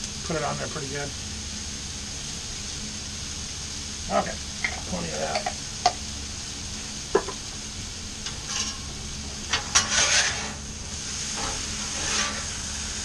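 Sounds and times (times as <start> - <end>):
vegetables sizzling on griddle: 0.0 - 13.0
metal spatulas scraping: 8.4 - 8.8, 9.5 - 10.6, 11.4 - 12.5.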